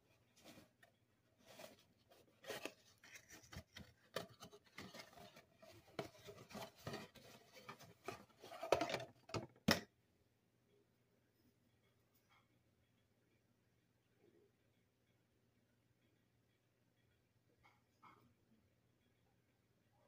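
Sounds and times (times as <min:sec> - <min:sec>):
cardboard box rustling: 0:00.2 - 0:09.1.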